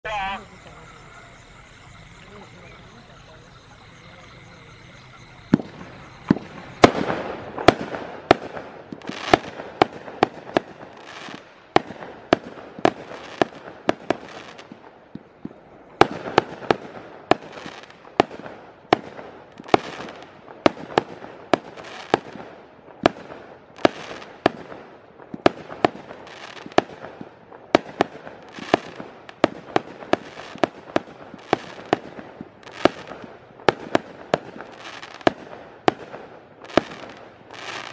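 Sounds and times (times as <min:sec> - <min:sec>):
firework cake sharp reports: 0:00.0 - 0:08.5.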